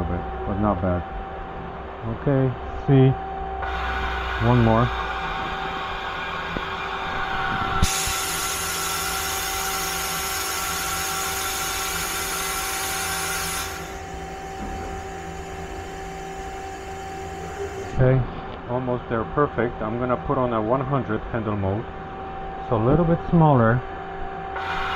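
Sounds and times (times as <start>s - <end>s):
lathe humming: 3.4s - 20.7s, 24.4s - 24.9s
loud high hiss: 3.6s - 18.0s.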